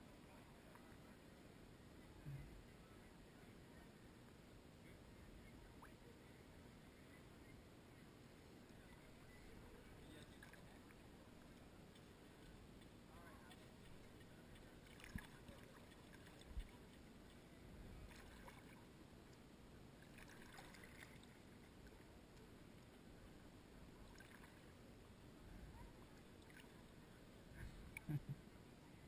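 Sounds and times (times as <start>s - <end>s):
water lapping and gurgling: 13.4s - 17.4s, 18.0s - 18.9s, 19.9s - 22.1s, 24.1s - 24.8s, 25.8s - 27.0s.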